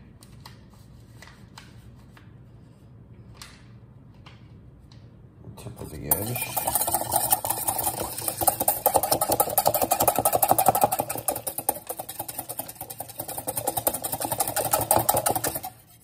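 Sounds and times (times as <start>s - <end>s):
metal whisk beating in bowl: 6.0s - 16.0s.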